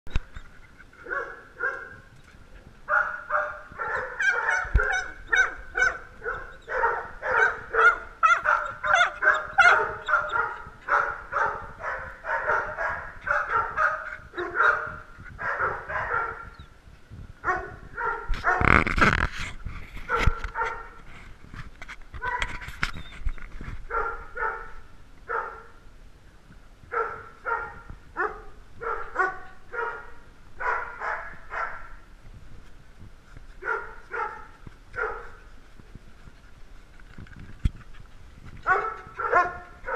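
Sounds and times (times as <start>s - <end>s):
rough noise near microphone: 0.1s - 39.9s
small dogs barking: 1.0s - 2.0s, 2.9s - 16.6s, 17.4s - 18.8s, 20.1s - 21.0s, 23.9s - 25.7s, 26.9s - 32.0s, 33.6s - 35.4s, 38.6s - 39.9s.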